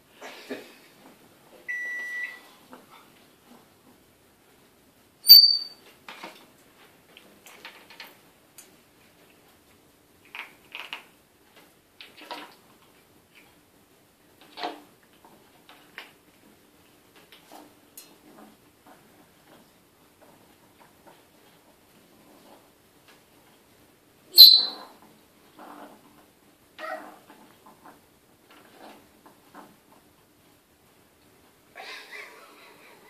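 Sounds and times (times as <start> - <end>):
parrot high whistle: 5.2 - 5.8, 24.4 - 24.8
parrot whistled beep: 5.3 - 5.8, 24.4 - 24.8.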